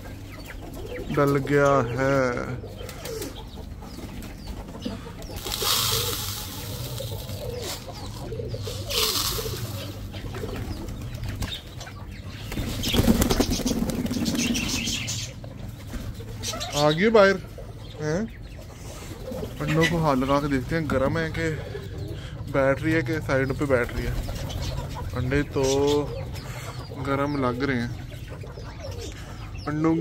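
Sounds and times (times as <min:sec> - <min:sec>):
pigeons cooing: 0:00.0 - 0:30.0
birdseed pouring into plastic feeders: 0:05.4 - 0:10.6
pigeons flapping wings: 0:05.4 - 0:11.6, 0:12.5 - 0:15.0.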